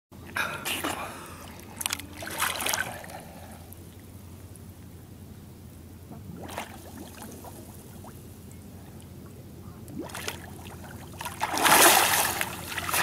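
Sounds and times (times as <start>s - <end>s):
steady low hum: 0.1s - 13.0s
lake water lapping: 0.4s - 3.7s, 6.3s - 9.1s, 9.8s - 13.0s
water sloshing: 0.8s - 3.7s, 6.2s - 9.3s, 9.9s - 13.0s.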